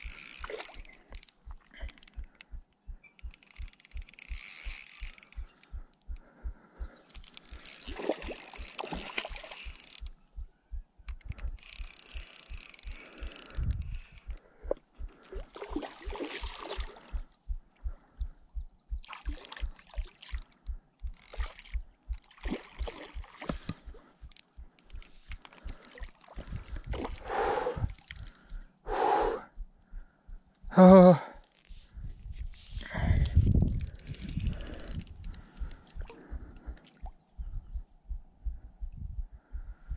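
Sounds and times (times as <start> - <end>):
spinning reel handle ticking: 0.0 - 6.3, 6.9 - 10.2, 11.0 - 14.5, 20.3 - 28.6, 33.2 - 36.8.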